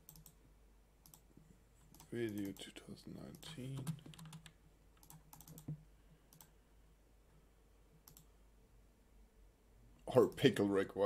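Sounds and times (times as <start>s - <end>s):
keyboard and mouse clicks: 0.0s - 0.4s, 1.0s - 1.3s, 1.9s - 2.7s, 3.3s - 6.5s, 8.0s - 8.3s
faint low hum: 0.0s - 11.0s.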